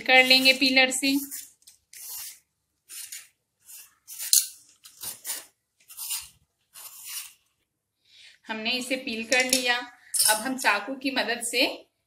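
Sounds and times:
vegetable peeler scraping skin: 0:01.2 - 0:07.4.

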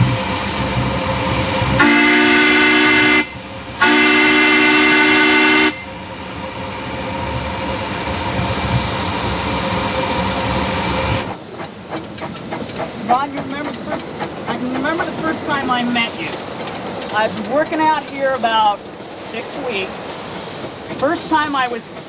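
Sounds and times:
steam locomotive rushing: 0:00.0 - 0:22.0
steam whistle blasts: 0:01.8 - 0:05.9.

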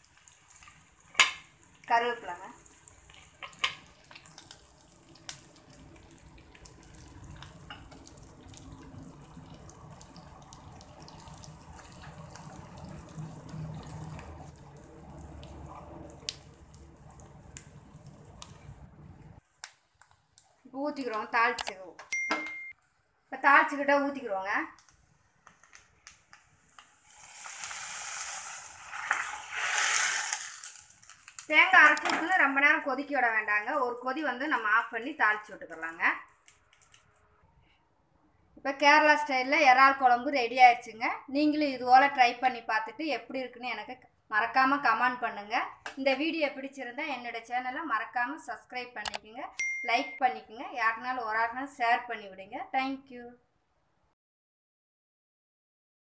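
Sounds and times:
leaves and chillies sizzling in oil: 0:00.0 - 0:18.9, 0:26.6 - 0:37.0.

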